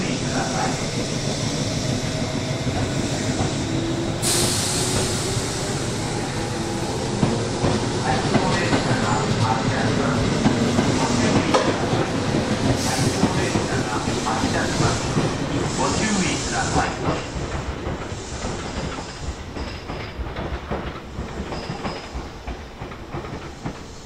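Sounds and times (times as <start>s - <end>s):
hiss: 2.9s - 7.0s, 12.8s - 17.3s, 18.0s - 19.4s.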